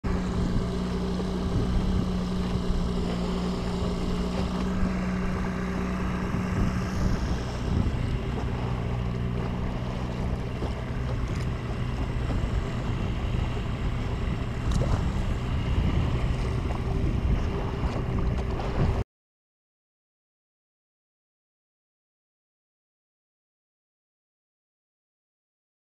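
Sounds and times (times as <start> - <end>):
boat motor running: 0.0 - 19.0
water washing along hull: 0.1 - 19.0
wind buffeting microphone: 0.1 - 19.0.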